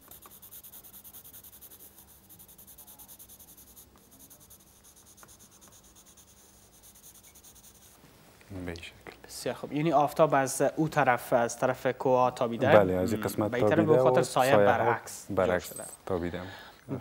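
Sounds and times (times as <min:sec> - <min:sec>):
pencil shading on paper: 0:00.0 - 0:08.0.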